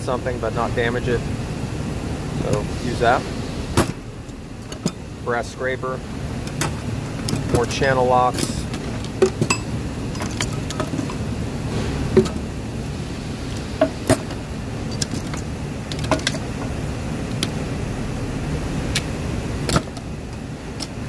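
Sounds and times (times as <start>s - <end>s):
steady low hum: 0.0s - 21.0s
metal hand tools clinking: 6.5s - 11.3s, 13.8s - 16.8s.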